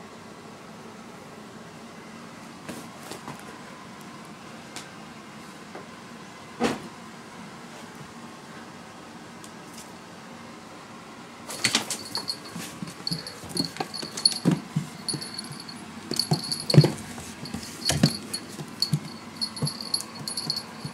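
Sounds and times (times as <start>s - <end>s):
high jingling: 11.5s - 20.9s
kitten scrambling on wooden floor: 11.5s - 20.9s.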